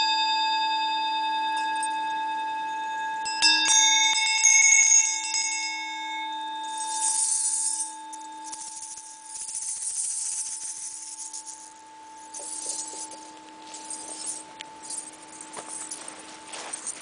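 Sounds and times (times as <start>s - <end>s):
singing bowl ringing: 0.0s - 17.0s
shaken jingling and rattling: 6.8s - 11.7s, 12.3s - 17.0s.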